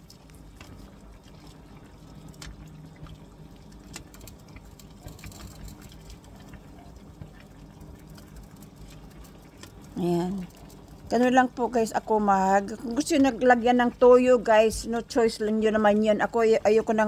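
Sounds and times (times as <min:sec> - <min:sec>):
ladle pouring liquid: 0:00.0 - 0:11.1
marinade bubbling and popping: 0:00.0 - 0:17.0.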